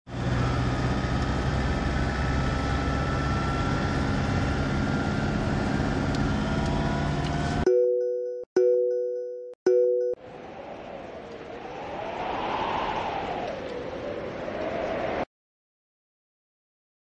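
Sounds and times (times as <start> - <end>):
vehicle engine and road rumble: 0.1 - 7.7.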